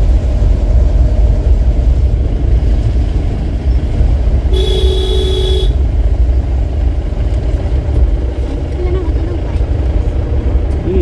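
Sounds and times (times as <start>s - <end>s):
car engine and road noise: 0.0s - 11.0s
vehicle horn: 4.5s - 5.8s.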